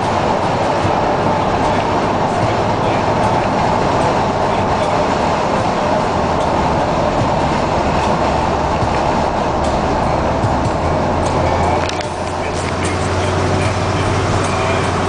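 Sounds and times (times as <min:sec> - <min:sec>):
car cabin road drone: 0:00.0 - 0:15.0
tyre and wind noise: 0:00.0 - 0:15.0.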